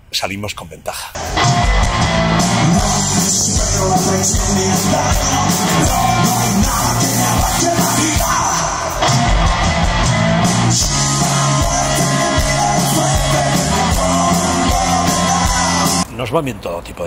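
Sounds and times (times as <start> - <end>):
live rock band playing: 1.2 - 16.0
shouted vocal: 2.6 - 10.0, 10.7 - 16.0.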